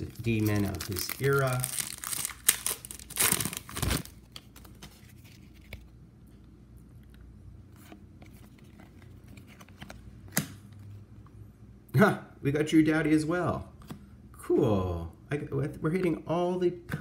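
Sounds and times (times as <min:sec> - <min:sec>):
foil wrapper tearing and crinkling: 0:00.0 - 0:04.2.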